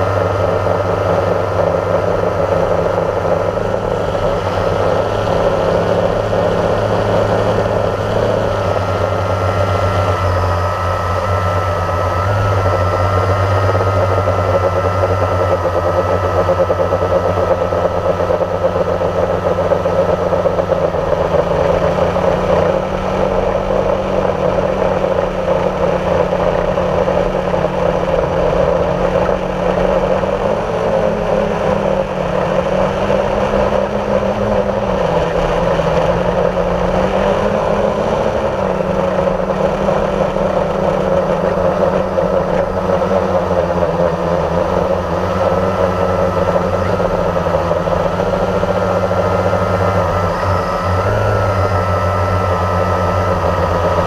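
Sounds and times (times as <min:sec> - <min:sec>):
drone motor and propellers humming: 0:00.0 - 0:54.0.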